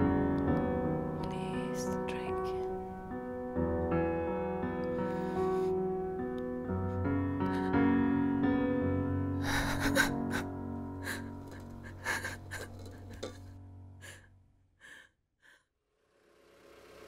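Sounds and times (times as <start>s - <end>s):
soft piano music: 0.0s - 14.5s
woman sobbing: 9.4s - 15.0s.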